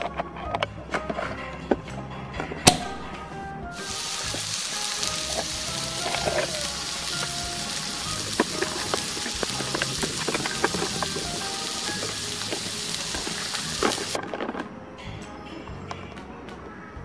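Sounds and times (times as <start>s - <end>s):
background music: 0.0s - 17.0s
frying sizzle sound effect: 2.7s - 14.2s.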